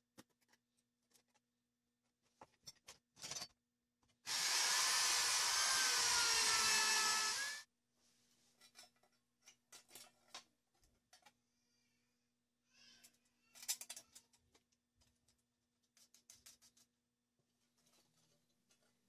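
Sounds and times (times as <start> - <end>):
electric drill boring into wood: 4.3 - 7.6
tools and sheet metal clicking: 8.6 - 11.4, 13.0 - 17.0.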